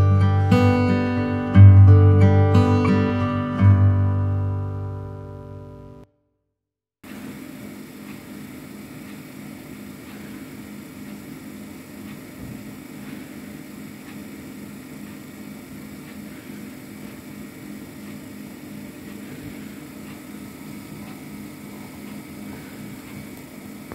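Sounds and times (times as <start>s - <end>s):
low electrical hum: 7.1s - 23.9s.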